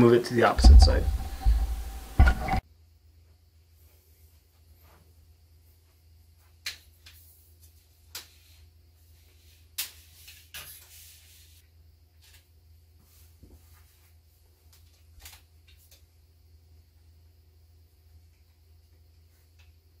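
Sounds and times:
faint low hum: 0.0s - 6.6s.

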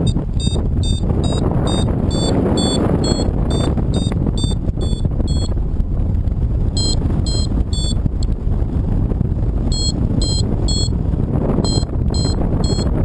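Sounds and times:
variometer beeping: 0.0s - 5.6s, 6.8s - 8.2s, 9.7s - 11.0s, 11.6s - 13.0s
wind buffeting microphone: 0.0s - 13.0s.

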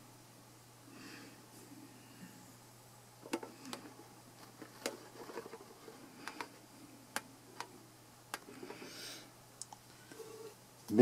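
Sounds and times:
faint low hum: 0.0s - 11.0s
soft rustling: 3.2s - 6.7s.

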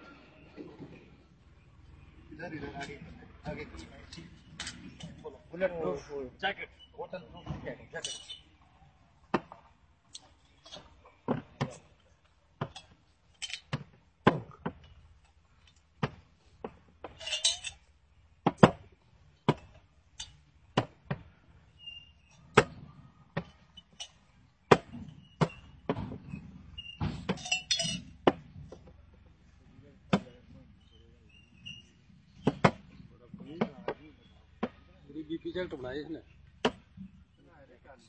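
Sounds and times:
glass bottles clinking: 7.9s - 8.6s, 12.6s - 13.8s, 17.0s - 17.9s, 23.4s - 24.3s, 26.8s - 28.2s.

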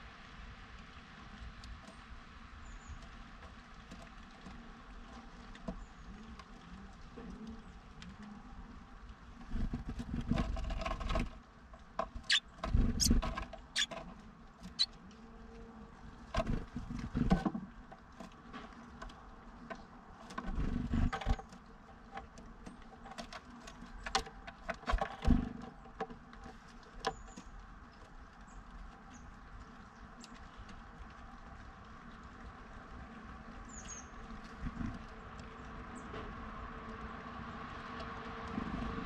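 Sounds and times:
bird scrabbling and pecking on wood: 9.4s - 15.0s, 16.3s - 31.2s.

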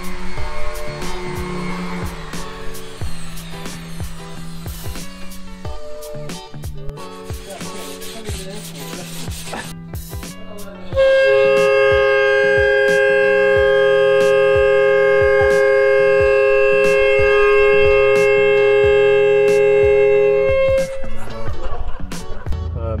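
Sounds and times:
homemade horn held note: 10.8s - 21.4s.

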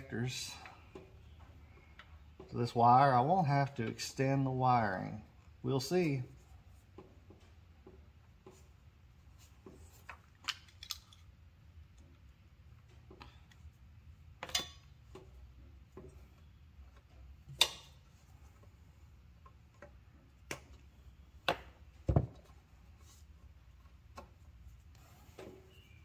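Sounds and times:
tools clicking and snapping: 10.4s - 11.3s, 17.5s - 18.0s.

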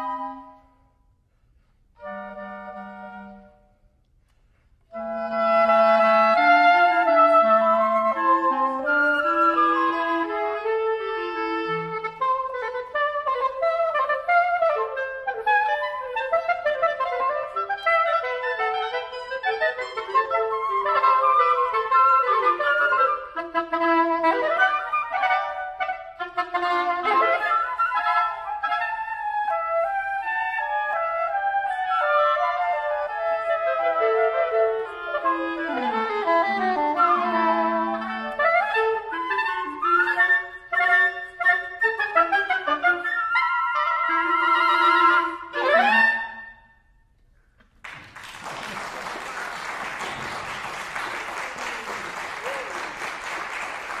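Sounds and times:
woodwind quartet playing: 0.0s - 46.9s
audience applauding: 47.7s - 54.0s.

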